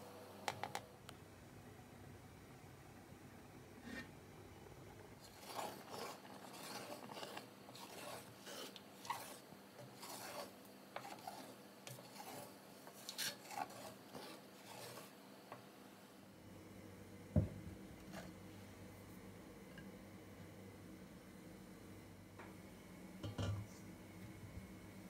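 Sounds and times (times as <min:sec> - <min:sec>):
wooden spatula scraping in pot: 0:03.8 - 0:04.2, 0:05.2 - 0:15.2, 0:18.0 - 0:18.4.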